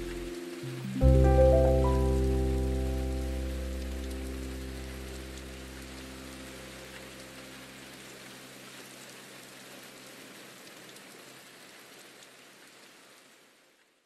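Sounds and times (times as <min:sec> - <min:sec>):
raindrop ticks: 0:00.0 - 0:01.6
faint rain hiss: 0:00.0 - 0:14.0.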